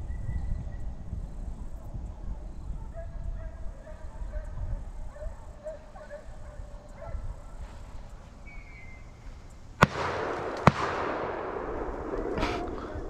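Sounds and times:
gunshots echoing: 0:09.8 - 0:13.0.

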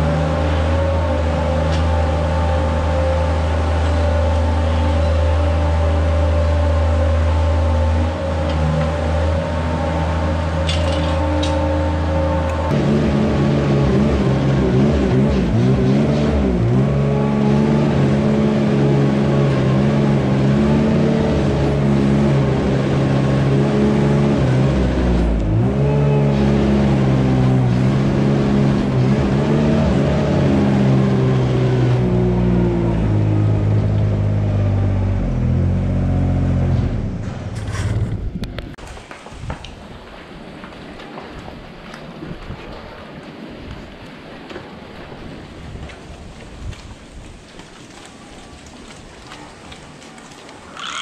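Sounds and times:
engine running under load: 0:00.0 - 0:38.8.

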